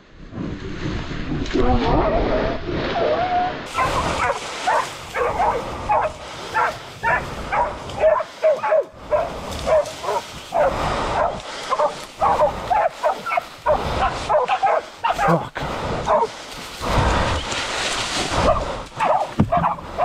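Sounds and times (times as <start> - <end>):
dogs barking and yelping: 3.7 - 15.4, 16.1 - 16.3, 18.4 - 20.0.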